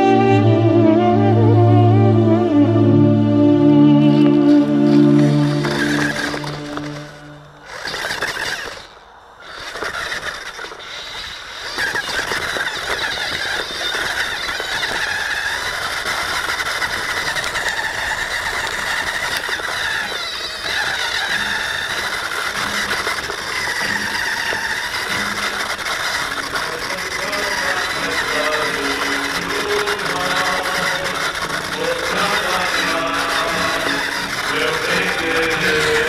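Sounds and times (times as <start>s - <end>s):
background music: 0.0s - 7.5s
toy car motor whining: 3.2s - 36.0s
chassis rattling: 4.3s - 36.0s.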